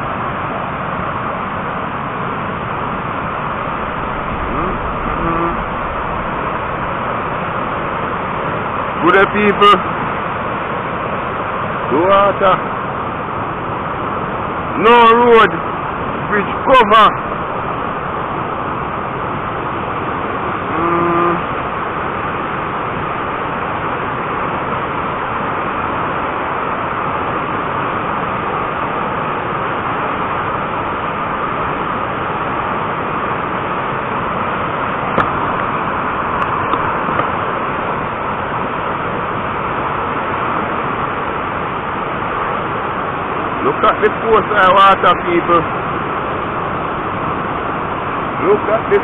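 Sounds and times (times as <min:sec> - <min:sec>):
floodwater rushing over rocks: 0:00.0 - 0:49.0
brief pitched sound: 0:04.5 - 0:06.2, 0:20.7 - 0:21.4.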